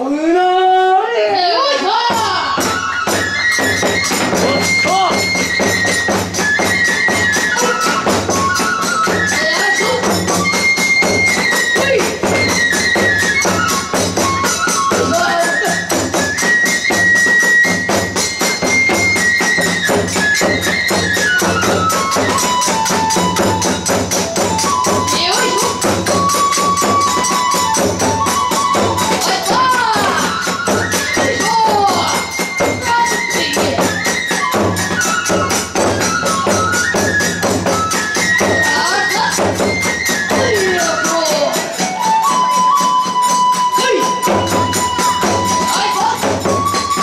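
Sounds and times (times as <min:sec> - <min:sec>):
bamboo flute long notes: 0:00.0 - 0:47.0
barrel drum beat: 0:01.7 - 0:47.0
small drum: 0:01.7 - 0:47.0
hand cymbals clashing: 0:02.1 - 0:47.0.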